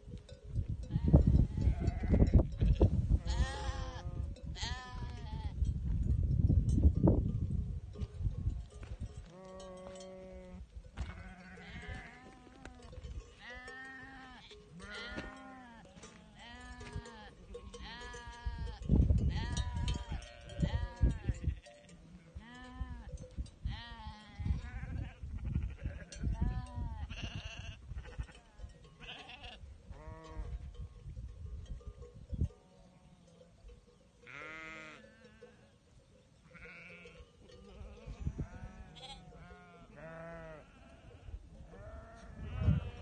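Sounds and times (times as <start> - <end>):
sheep bleating: 0.9 - 2.3, 3.2 - 5.6, 9.3 - 23.1, 23.7 - 28.4, 29.0 - 30.6, 34.3 - 35.5, 36.4 - 43.0.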